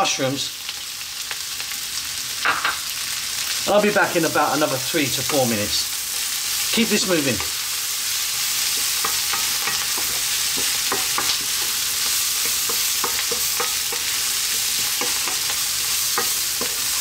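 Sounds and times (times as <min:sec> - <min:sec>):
vegetables sizzling in hot oil: 0:00.0 - 0:17.0
wooden spatula scraping a pan: 0:08.5 - 0:17.0.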